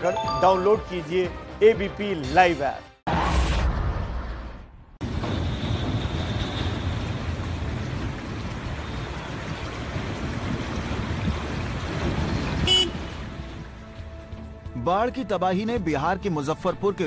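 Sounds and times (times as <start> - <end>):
floodwater rushing: 5.3 - 14.2.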